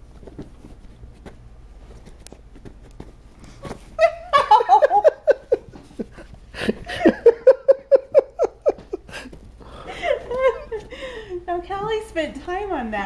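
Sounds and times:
woman giggling: 4.0s - 11.5s.

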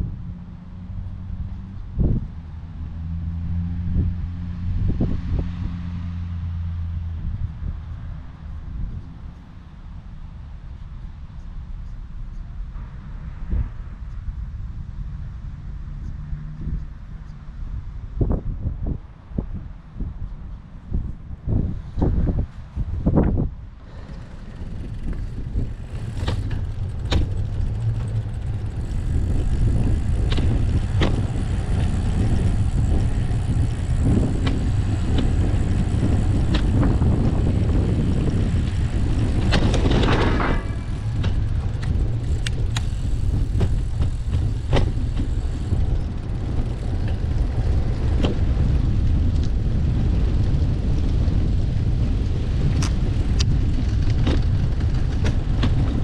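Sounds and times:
wind and riding rumble: 0.0s - 56.0s
vehicle passing: 23.7s - 52.6s
clicks and rattles: 23.9s - 48.4s.

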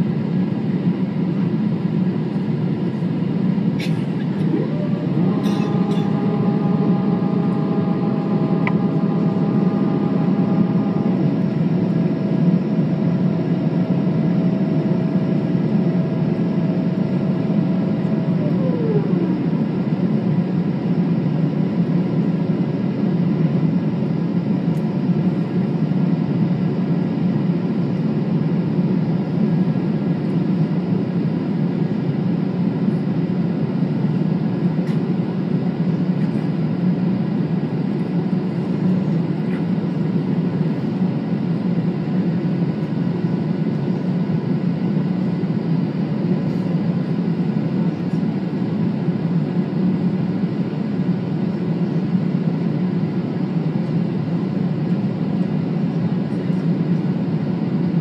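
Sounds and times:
airplane cabin noise: 0.0s - 58.0s
thin whining tones: 4.4s - 13.0s.

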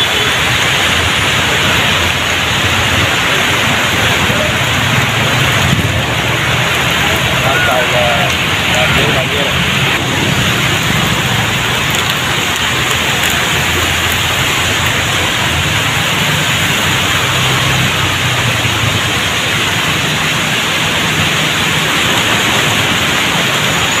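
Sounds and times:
heavy rain pouring on road: 0.0s - 24.0s
motorbike engines humming: 0.0s - 24.0s.

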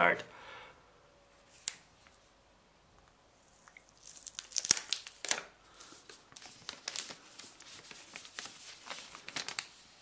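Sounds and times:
plastic film peeling crackles: 3.9s - 10.0s.

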